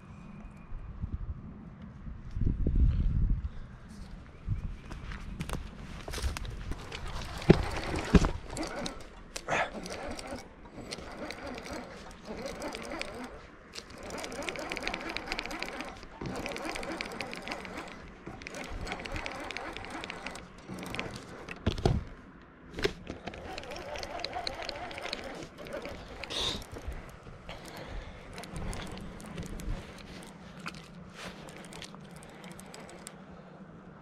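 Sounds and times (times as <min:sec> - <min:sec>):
fishing reel clicking: 0:06.8 - 0:21.6, 0:23.2 - 0:33.2.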